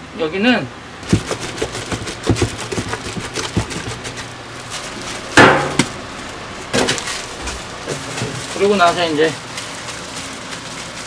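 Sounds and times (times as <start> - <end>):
dough scraped from metal bowl: 1.0 - 4.4
loud metallic clang: 5.4 - 6.0.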